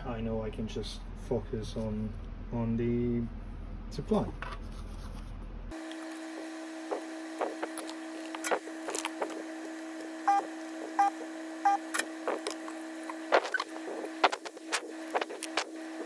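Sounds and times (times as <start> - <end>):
hot air gun blowing hum: 5.8 - 16.0
short beeps: 10.3 - 11.8.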